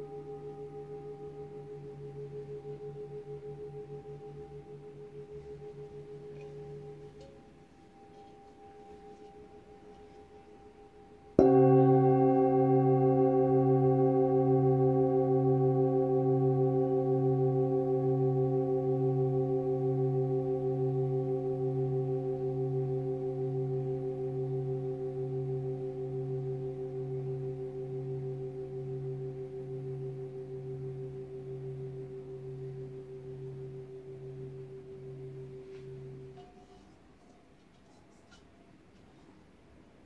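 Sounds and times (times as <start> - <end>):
singing bowl ringing: 0.0 - 37.0.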